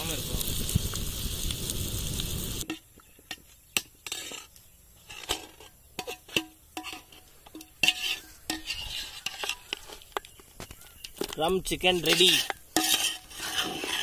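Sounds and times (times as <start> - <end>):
spoon scraping metal pot: 2.6 - 10.3, 11.0 - 14.0.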